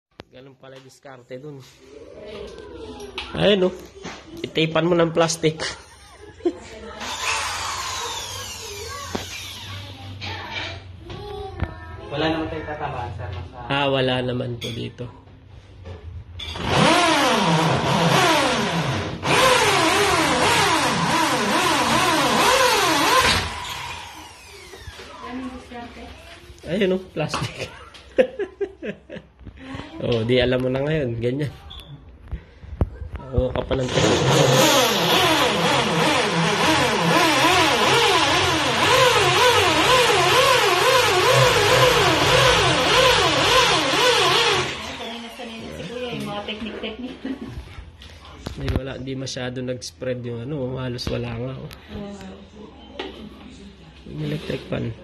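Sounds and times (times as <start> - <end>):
electric drill boring: 7.0 - 9.8, 16.6 - 25.1, 33.9 - 45.3.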